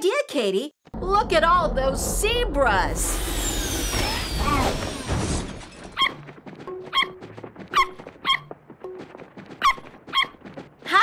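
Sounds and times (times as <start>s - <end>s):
cartoon hooves clopping: 5.7s - 11.0s.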